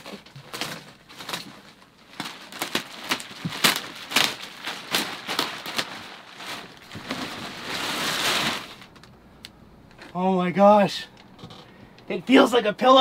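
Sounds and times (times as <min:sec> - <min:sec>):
plastic wrapping crinkling: 0:00.0 - 0:09.2.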